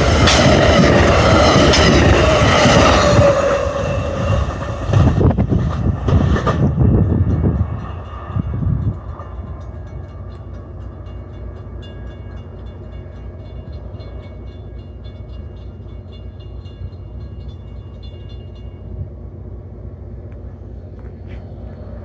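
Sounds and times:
train low rumble: 0:00.0 - 0:22.0.

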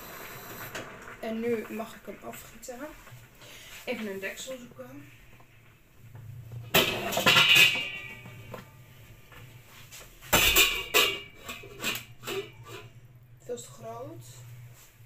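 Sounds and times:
metal pots and lids clattering: 0:06.6 - 0:08.7, 0:10.3 - 0:13.1.

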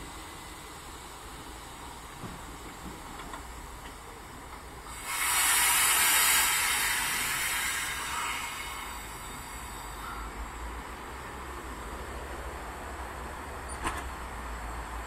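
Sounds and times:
train brakes releasing air hiss: 0:00.0 - 0:10.9.

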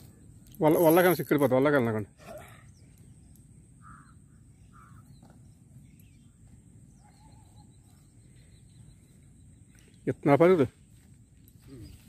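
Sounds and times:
faint bird calls: 0:02.2 - 0:10.0, 0:11.0 - 0:12.0.

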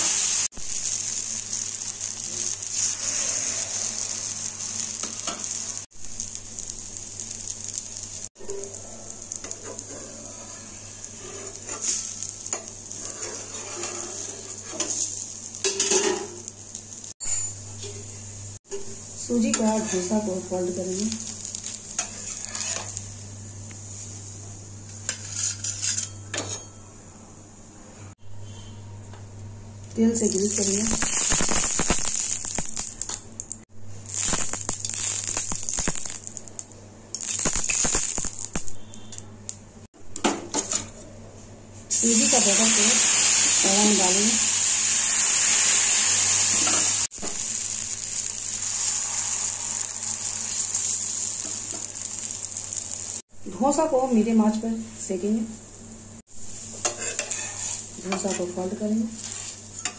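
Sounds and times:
batter sizzling on a hot pan: 0:00.0 - 0:17.4, 0:18.2 - 0:26.1, 0:30.1 - 0:39.1, 0:41.9 - 0:53.3, 0:56.2 - 0:59.9
spatula scraping metal: 0:12.9 - 0:15.0, 0:22.0 - 0:23.0, 0:25.1 - 0:26.7, 0:56.8 - 0:58.5.

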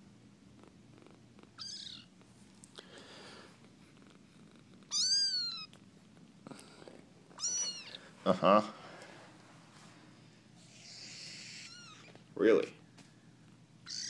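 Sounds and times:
kitten mewing: 0:04.9 - 0:05.8, 0:07.4 - 0:08.0, 0:10.7 - 0:12.2.

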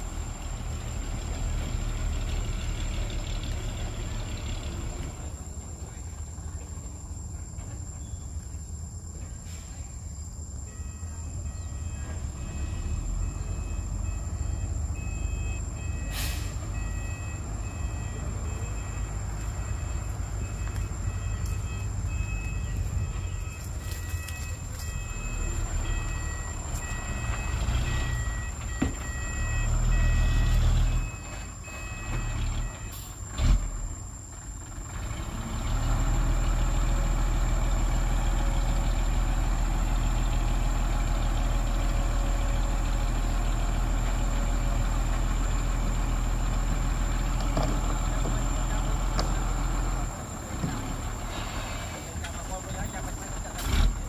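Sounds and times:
diesel truck engine: 0:00.0 - 0:54.0
two-tone reversing beeper: 0:10.6 - 0:33.1.

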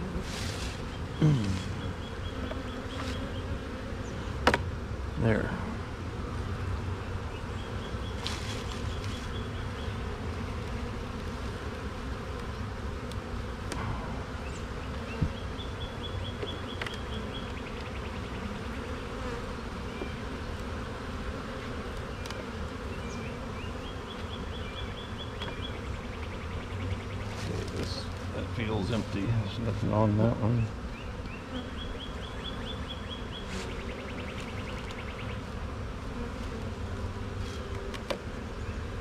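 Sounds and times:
honeybees buzzing: 0:00.0 - 0:39.0.

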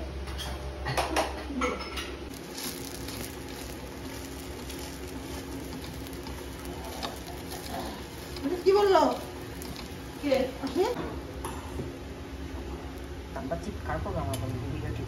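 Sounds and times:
low sizzle on griddle: 0:02.3 - 0:15.0
metal spatula scraping griddle: 0:02.5 - 0:11.0.

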